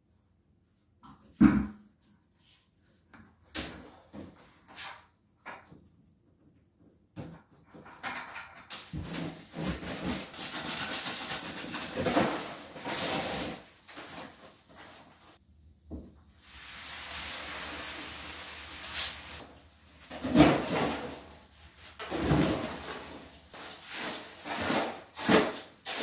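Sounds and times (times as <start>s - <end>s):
scraping in plastic tub: 9.0s - 15.0s, 17.1s - 26.0s
dry mix pouring hiss: 16.3s - 19.7s.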